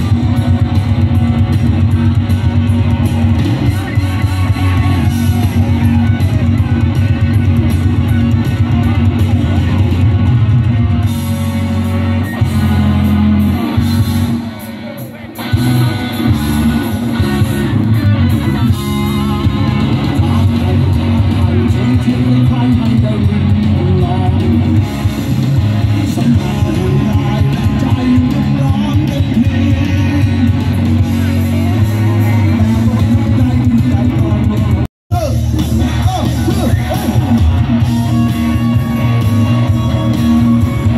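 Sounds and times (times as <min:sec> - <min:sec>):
live rock band playing: 0:00.0 - 0:40.9.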